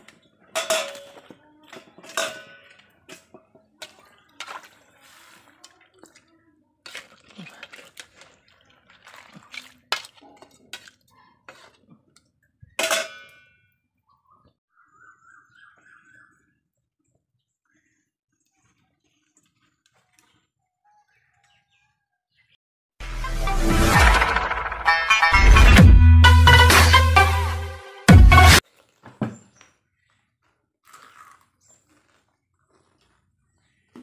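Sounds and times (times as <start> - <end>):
metal cookware clanking: 0.0 - 3.5, 12.8 - 13.6.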